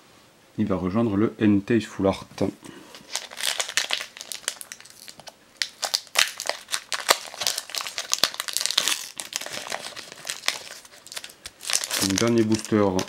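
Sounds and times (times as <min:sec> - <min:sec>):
foil wrapper crinkling: 0:02.9 - 0:13.0.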